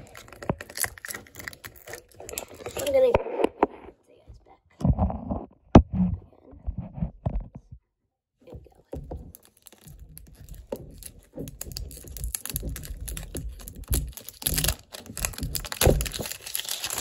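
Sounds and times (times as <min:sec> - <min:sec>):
plastic wrap crinkling: 0:00.0 - 0:03.4, 0:08.9 - 0:17.0.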